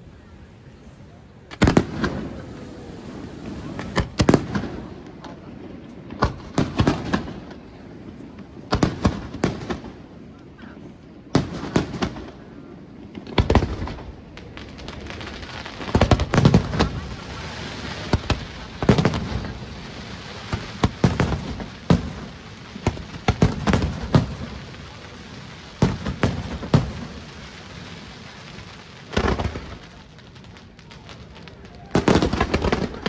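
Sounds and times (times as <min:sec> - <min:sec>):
firework shells bursting: 0:01.5 - 0:05.3.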